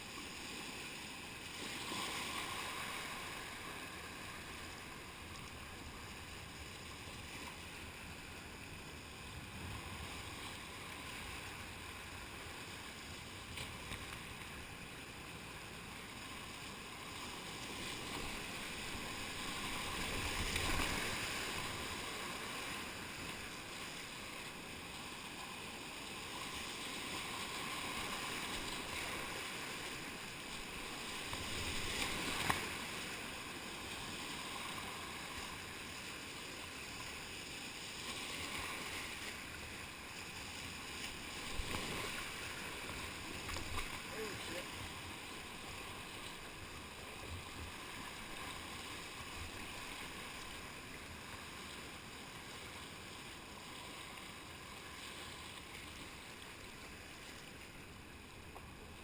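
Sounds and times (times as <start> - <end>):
whitewater rapids rushing and splashing: 1.3 - 59.0.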